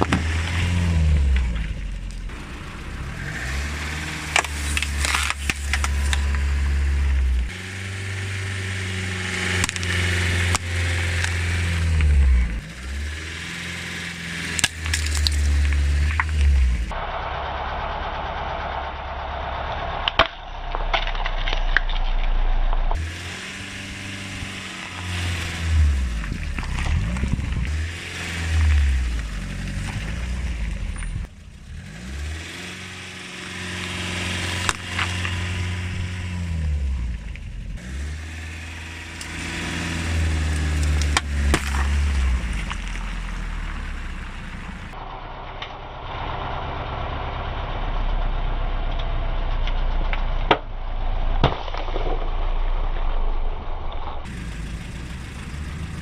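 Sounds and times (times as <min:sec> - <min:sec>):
car engine idling and revving: 0:00.0 - 0:56.0
cans and bottles cracking under tyre: 0:04.2 - 0:06.5, 0:14.4 - 0:16.6, 0:40.5 - 0:44.6.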